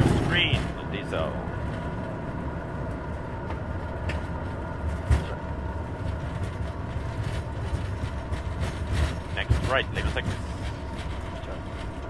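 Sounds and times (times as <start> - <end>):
jet engines in reverse thrust: 0.0 - 12.0
wheels rumbling on runway: 0.0 - 12.0.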